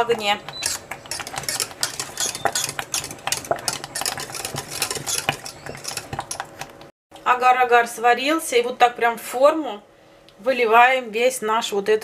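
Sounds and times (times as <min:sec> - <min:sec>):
whisk scraping a saucepan: 0:00.0 - 0:06.7.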